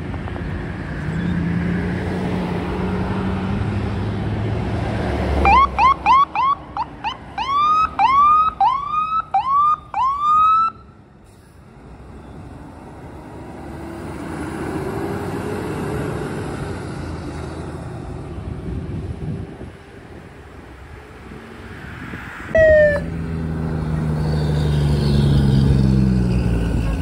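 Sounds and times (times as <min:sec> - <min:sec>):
fire truck siren yelping: 0:05.4 - 0:10.9, 0:22.5 - 0:23.2
truck driving past: 0:11.2 - 0:27.0.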